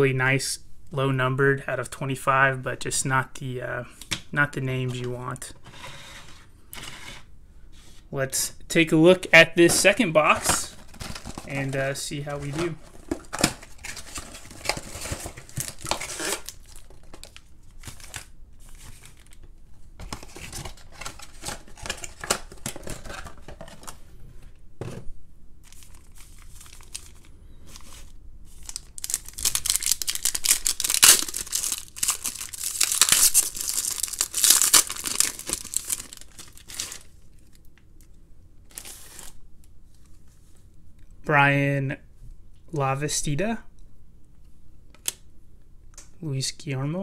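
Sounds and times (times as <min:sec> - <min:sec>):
plastic wrappers tearing and crinkling: 0:09.7 - 0:24.0, 0:25.6 - 0:37.7, 0:38.7 - 0:39.4.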